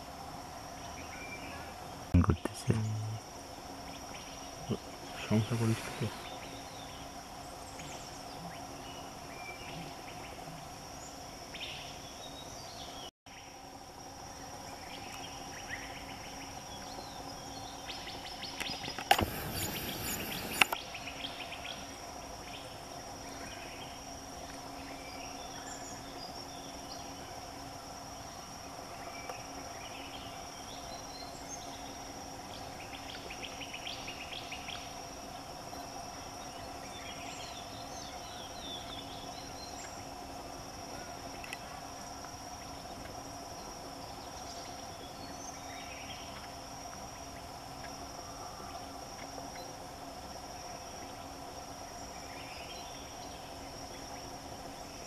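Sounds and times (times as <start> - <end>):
high insect drone: 0.0 - 55.0
brief rush of noise: 5.6 - 6.4, 19.1 - 20.8
sharp clicks: 19.0 - 20.8
short bird chirps: 19.2 - 20.8.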